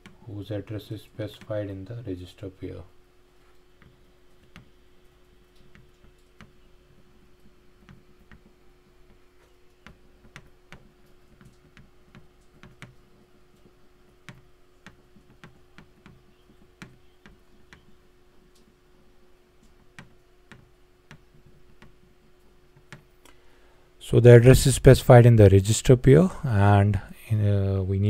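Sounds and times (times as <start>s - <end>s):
faint steady hum: 0.0s - 28.0s
stylus tapping on tablet: 9.8s - 13.0s, 13.6s - 18.0s, 19.8s - 22.0s.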